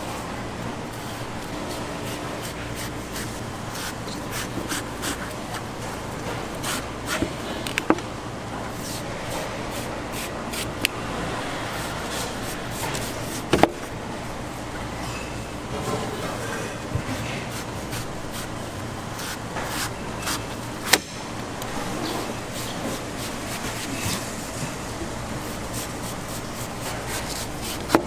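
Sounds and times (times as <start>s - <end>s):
steady background hum: 0.0s - 28.0s.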